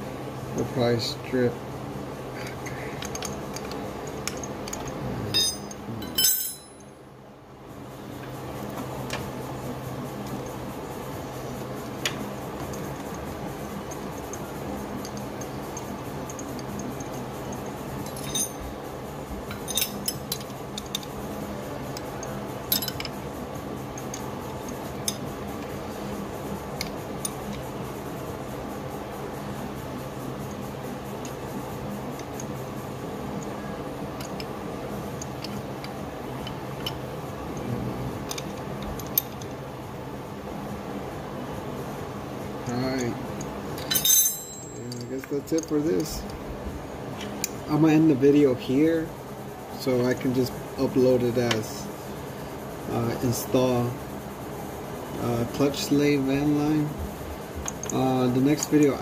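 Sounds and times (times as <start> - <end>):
steady low hum: 0.0 - 59.0
wrench clinking on concrete: 3.0 - 7.0, 18.0 - 18.7, 19.5 - 21.0, 22.7 - 23.2, 43.8 - 46.2
metallic clicks and clinks: 15.0 - 18.6, 22.7 - 23.2, 42.6 - 46.3.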